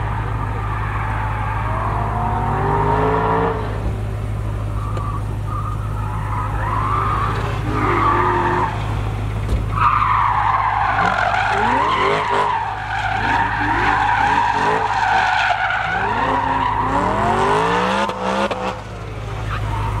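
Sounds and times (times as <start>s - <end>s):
car engine revving: 0.0s - 20.0s
tyres squealing: 4.6s - 17.6s.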